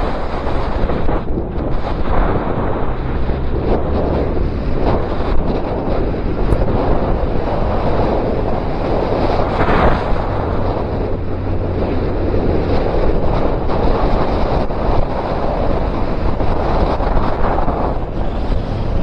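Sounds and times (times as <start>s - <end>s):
motorcycle engine droning: 0.0s - 19.0s
wind buffeting microphone: 0.0s - 19.0s.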